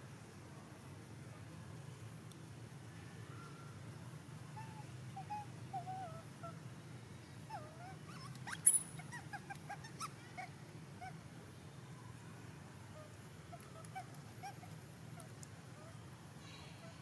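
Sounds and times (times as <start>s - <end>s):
infant monkey whimpering calls: 4.6s - 6.6s, 7.5s - 11.2s, 13.0s - 16.0s, 16.6s - 17.0s.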